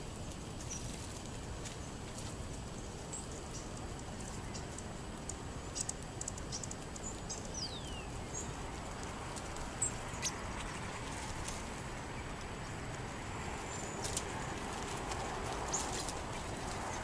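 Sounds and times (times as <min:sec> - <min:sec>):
background hiss: 0:00.0 - 0:17.0
small birds chipping: 0:00.0 - 0:17.0.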